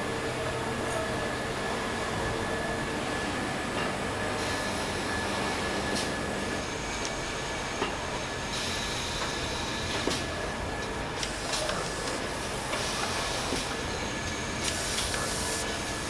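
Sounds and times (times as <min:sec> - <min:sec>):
packaging machinery humming: 0:00.0 - 0:16.0.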